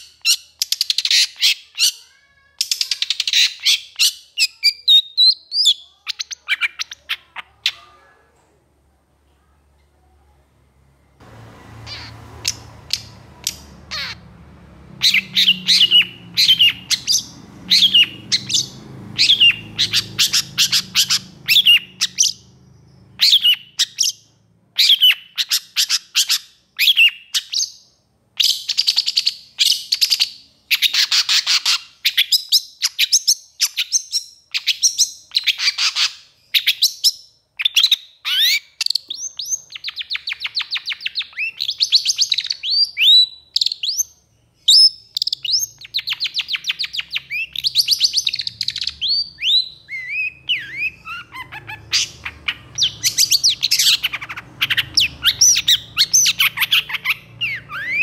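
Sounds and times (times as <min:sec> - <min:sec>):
faint low hum: 0:05.8 - 0:25.2.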